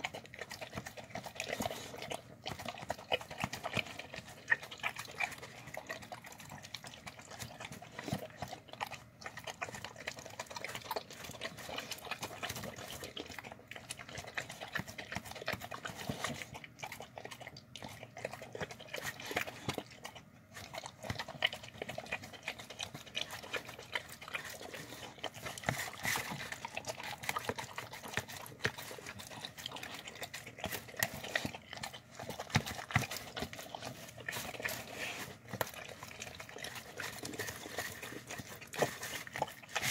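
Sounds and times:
dog eating wet food: 0:00.0 - 0:39.9.

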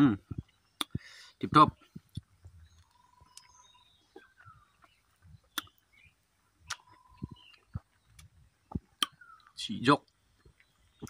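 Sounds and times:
faint bird calls: 0:00.1 - 0:09.8
sharp clicks from eating: 0:06.6 - 0:11.0.

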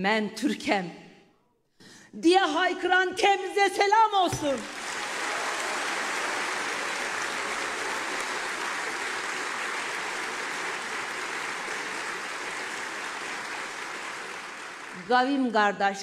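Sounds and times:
large audience applauding: 0:04.4 - 0:15.5.

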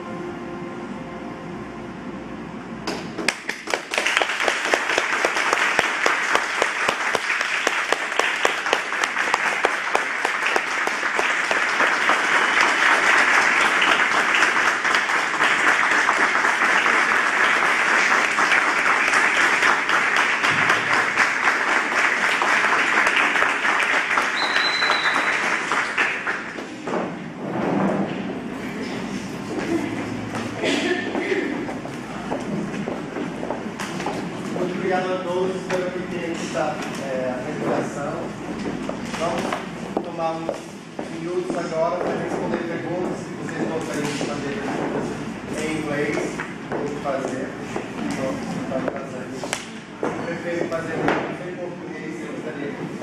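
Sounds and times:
audience applauding: 0:03.3 - 0:26.8.

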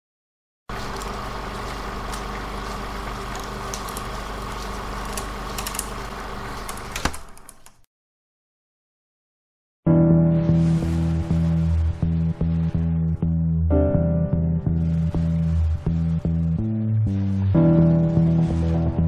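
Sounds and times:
film projector whirring: 0:00.7 - 0:07.8.

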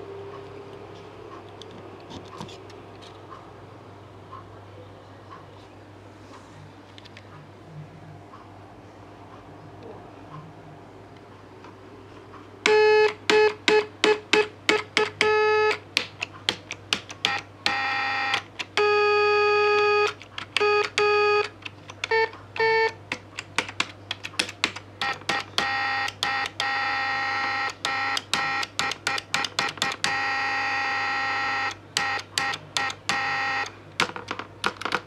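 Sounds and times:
low steady hum: 0:00.0 - 0:16.4
key press clicks: 0:13.0 - 0:18.9, 0:19.8 - 0:26.8, 0:27.6 - 0:30.3, 0:31.6 - 0:35.0.

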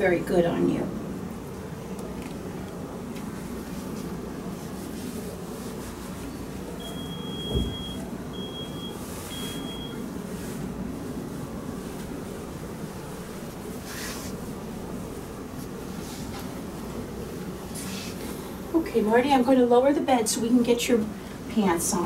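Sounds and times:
low room hum: 0:00.0 - 0:22.0
low thump: 0:07.5 - 0:07.8.

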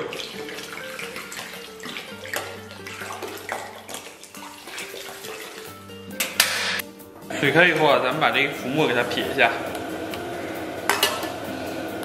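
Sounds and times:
wine trickling into water: 0:00.0 - 0:06.0.

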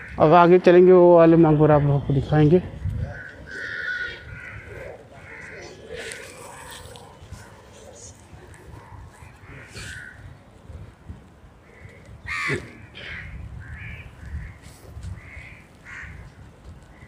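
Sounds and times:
crows cawing: 0:00.0 - 0:00.6, 0:03.0 - 0:07.5, 0:08.6 - 0:10.5, 0:11.5 - 0:17.0.

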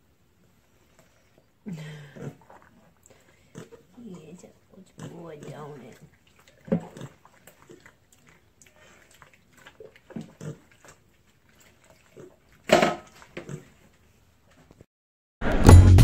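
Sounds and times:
pig grunting: 0:01.7 - 0:11.1, 0:11.7 - 0:13.8.

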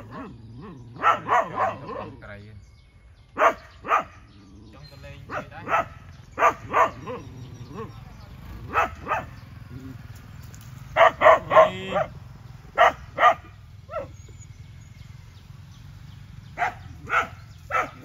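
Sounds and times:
dog barking: 0:00.0 - 0:02.2, 0:03.4 - 0:04.3, 0:05.2 - 0:08.0, 0:08.7 - 0:09.4, 0:11.0 - 0:14.3, 0:16.5 - 0:18.0.

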